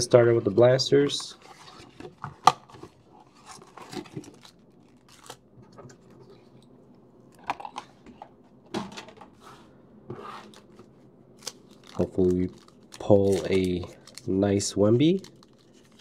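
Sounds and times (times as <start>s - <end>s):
foil card packs crinkling: 3.3s - 5.4s, 11.4s - 16.0s.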